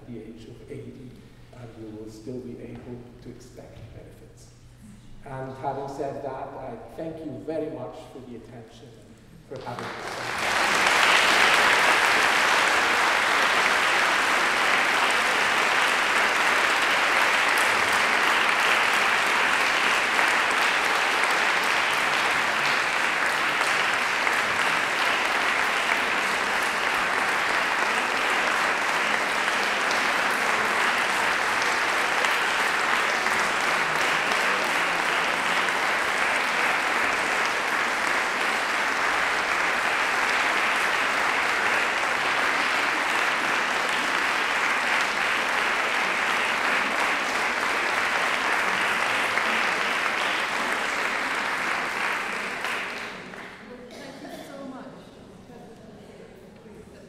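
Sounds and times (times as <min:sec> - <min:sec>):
audience applause: 0:09.5 - 0:53.7.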